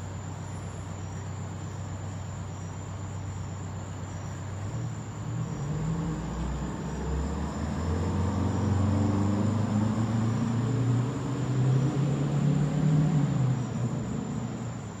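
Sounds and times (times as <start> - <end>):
fire engine accelerating: 5.6 - 14.7.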